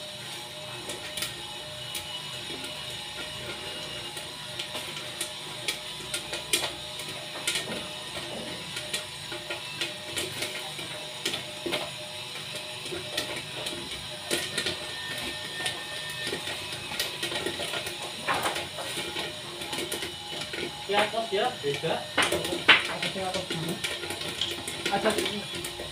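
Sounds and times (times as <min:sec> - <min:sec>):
popcorn machine motor hum: 0:00.0 - 0:25.9
popcorn kernels popping: 0:00.7 - 0:25.9.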